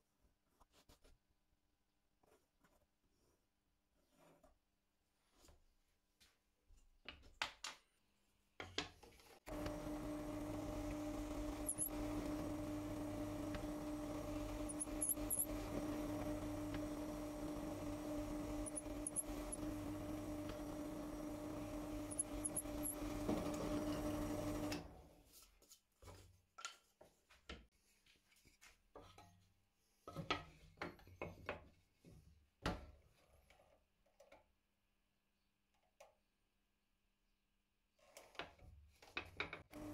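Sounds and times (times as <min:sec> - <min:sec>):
drill bit drilling into wood: 0:09.5 - 0:24.7
drill press motor humming: 0:09.5 - 0:24.9.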